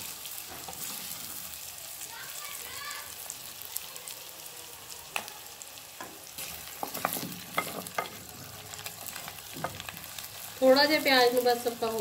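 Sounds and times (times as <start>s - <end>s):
onions sizzling in a pot: 0.0s - 12.0s.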